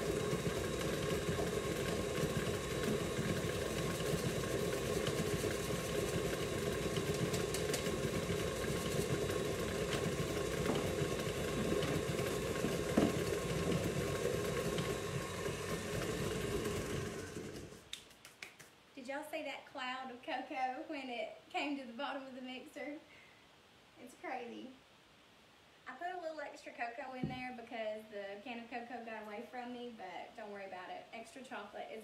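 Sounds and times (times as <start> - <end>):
mixer beater clack: 0.0 - 17.8
stand mixer motor running: 0.0 - 17.8.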